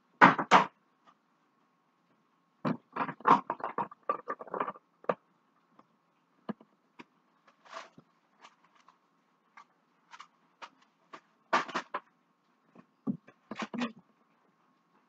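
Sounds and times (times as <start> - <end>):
soft rustle: 7.3 - 11.4.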